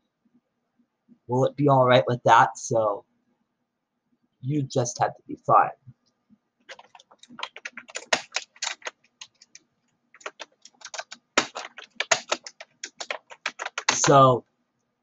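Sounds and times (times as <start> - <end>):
typing on computer keyboard: 6.7 - 9.6, 10.2 - 14.3.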